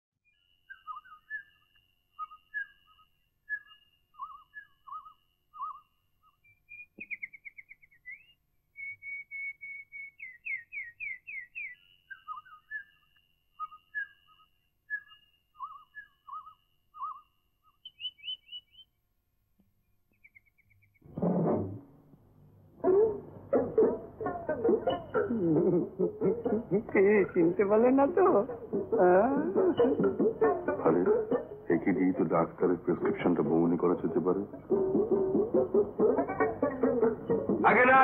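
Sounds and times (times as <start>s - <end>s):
high whistling: 0.3s - 18.9s
bird-like chirping: 0.3s - 19.0s, 19.9s - 21.1s.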